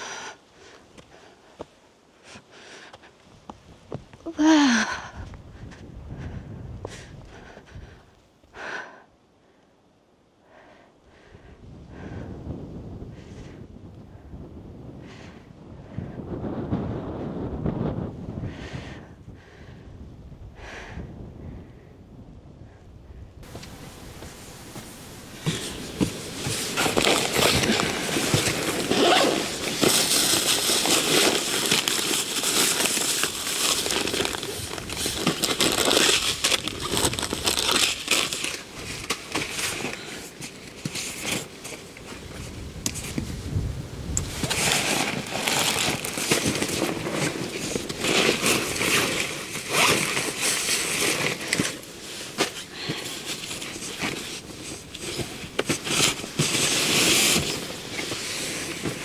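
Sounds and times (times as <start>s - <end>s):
fabric and plastic bags rustling: 23.4s - 43.3s, 44.2s - 59.0s.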